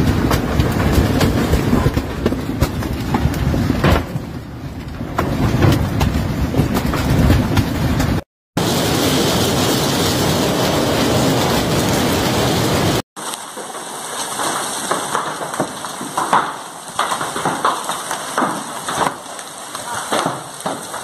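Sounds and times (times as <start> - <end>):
hail splashing into pool: 0.0 - 21.0
hailstones pounding pavement: 0.0 - 21.0
sharp cracks: 13.2 - 21.0.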